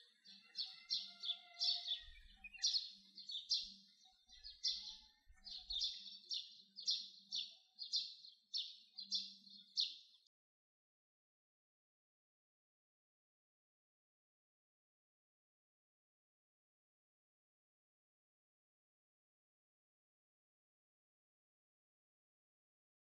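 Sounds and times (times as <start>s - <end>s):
bird chirping: 0.0s - 10.3s.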